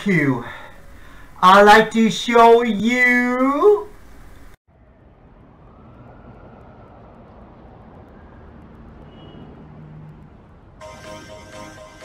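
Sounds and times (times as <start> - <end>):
road traffic: 0.0 - 1.4, 3.9 - 12.0
faint brief tone: 9.1 - 9.5.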